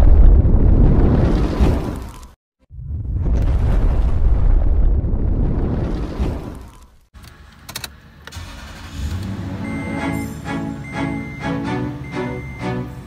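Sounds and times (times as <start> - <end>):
deep rumbling: 0.0 - 6.7
car engine starting and idling: 7.2 - 13.0
background music: 8.9 - 13.0.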